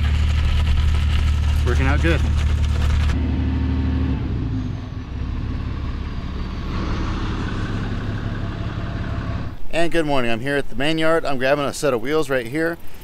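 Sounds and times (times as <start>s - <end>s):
truck engine running: 0.0s - 9.7s.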